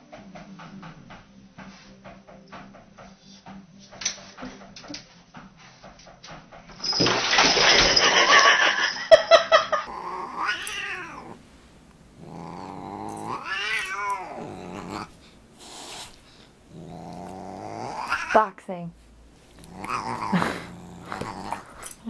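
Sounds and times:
cat yowling: 9.9 - 11.4, 12.2 - 15.2, 16.7 - 18.4, 19.6 - 21.8.

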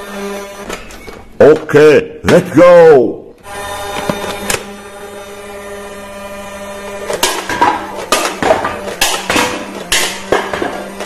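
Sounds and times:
toy blaster motor whirring: 3.4 - 7.3.

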